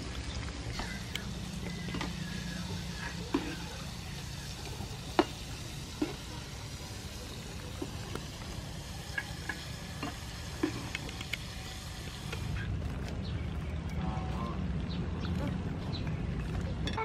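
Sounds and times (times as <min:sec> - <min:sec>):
deep-frying sizzle: 0:00.0 - 0:12.6.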